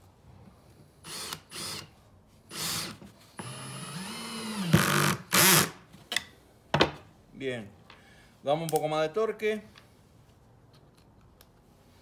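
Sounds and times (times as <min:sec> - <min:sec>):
cordless drill driving screw: 0:01.0 - 0:01.9, 0:02.5 - 0:05.8.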